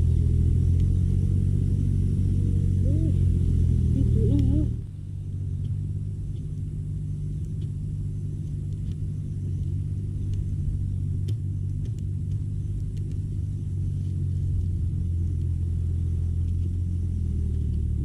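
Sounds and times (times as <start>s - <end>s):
steady low hum: 0.0s - 18.0s
campfire crackling: 4.8s - 18.0s.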